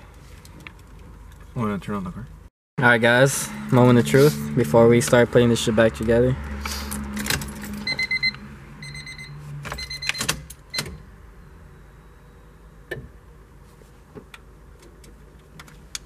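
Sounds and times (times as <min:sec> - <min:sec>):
rapid electronic warning beeps: 0:07.9 - 0:10.2.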